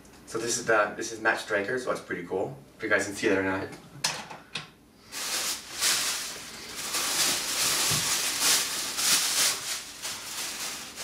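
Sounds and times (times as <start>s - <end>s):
plastic bag rustling: 5.0s - 11.0s.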